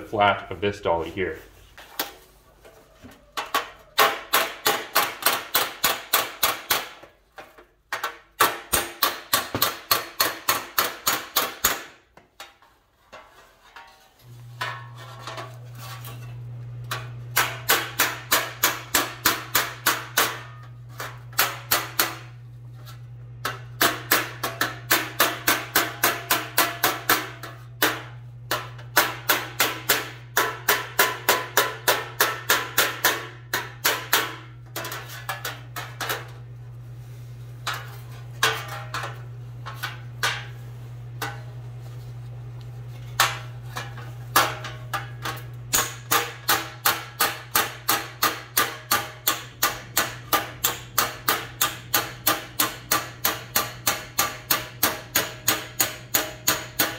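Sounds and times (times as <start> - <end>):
steady low hum: 14.2 - 56.9.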